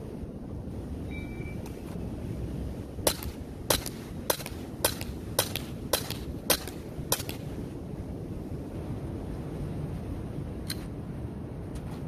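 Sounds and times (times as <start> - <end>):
air pistol shots: 3.1 - 7.5.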